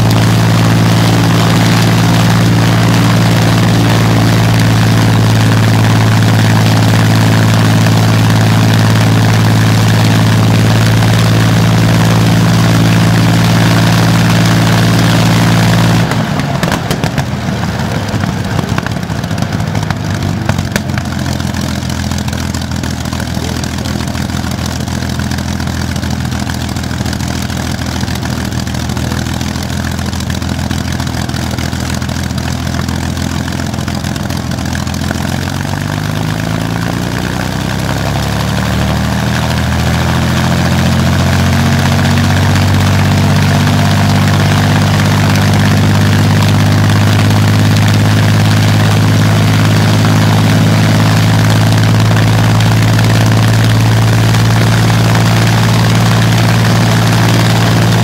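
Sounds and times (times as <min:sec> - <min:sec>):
aero engine running: 0:00.0 - 0:58.0
sharp engine cracks: 0:15.3 - 0:36.6.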